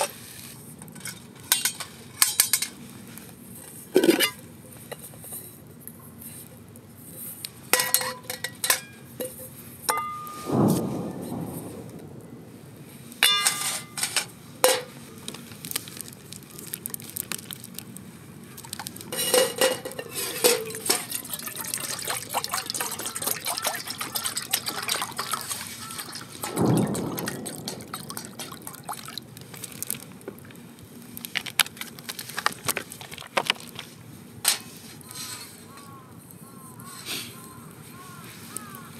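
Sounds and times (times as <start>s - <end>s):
metal pots clinking: 0.9s - 2.8s, 4.0s - 5.5s, 7.8s - 10.5s, 13.2s - 15.0s, 19.1s - 29.2s
water pouring into metal pot: 18.6s - 30.0s.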